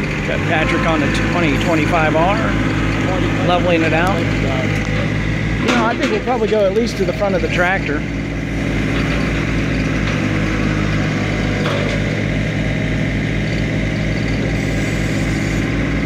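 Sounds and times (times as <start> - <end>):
diesel tractor engines running: 0.0 - 16.0.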